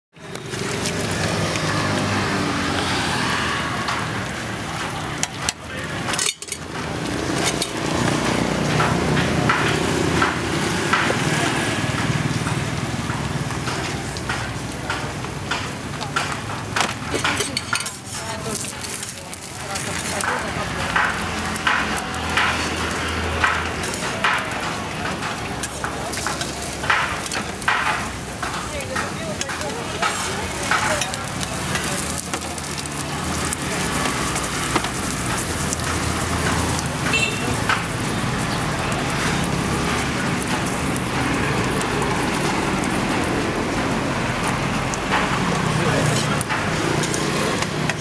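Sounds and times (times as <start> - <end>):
flatbread sizzling on a griddle: 0.2 - 48.0
metal spatula scraping griddle: 5.3 - 12.0, 15.6 - 42.5, 45.1 - 48.0.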